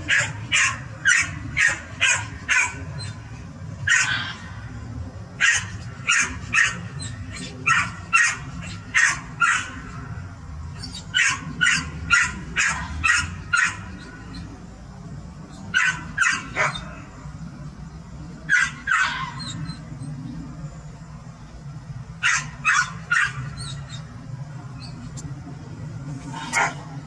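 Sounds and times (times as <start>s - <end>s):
dog barking high-pitched: 0.0s - 3.2s, 3.8s - 4.4s, 5.4s - 10.0s, 11.0s - 14.0s, 15.7s - 16.9s, 18.5s - 19.6s, 22.2s - 24.0s
low hum: 0.0s - 27.0s.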